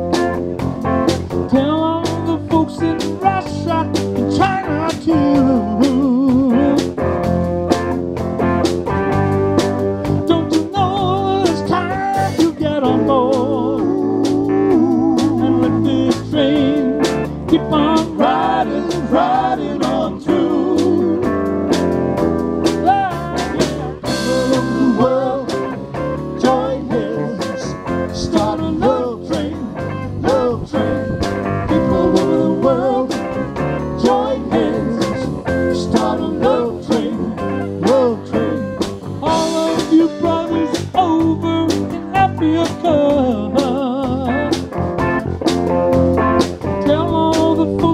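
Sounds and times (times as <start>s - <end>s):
live rock band playing: 0.0s - 47.9s
lead guitar bent notes: 16.5s - 40.7s, 41.4s - 47.9s.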